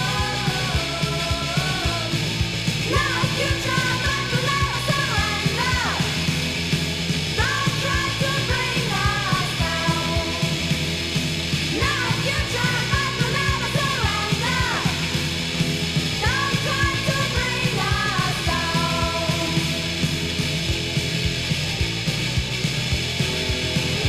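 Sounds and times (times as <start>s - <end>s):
person singing: 0.0s - 6.3s, 7.4s - 10.7s, 11.7s - 15.3s, 16.2s - 19.9s
electric guitar and drums: 0.0s - 24.0s.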